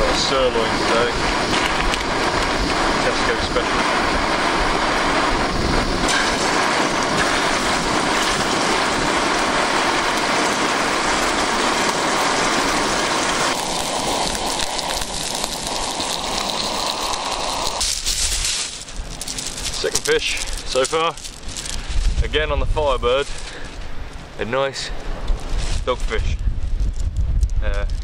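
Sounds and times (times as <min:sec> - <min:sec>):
steak sizzling in a frying pan: 0:00.0 - 0:21.9.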